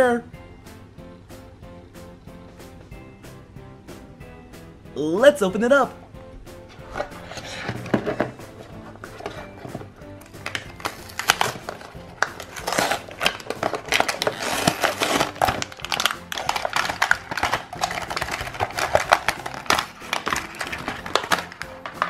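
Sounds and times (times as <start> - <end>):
background music: 0.0 - 22.0
plastic packaging crinkling: 9.1 - 22.0.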